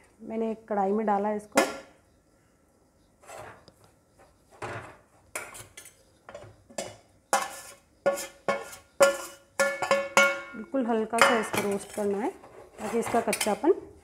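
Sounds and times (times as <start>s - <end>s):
spoon scraping a steel bowl: 3.2s - 10.6s, 11.2s - 13.7s.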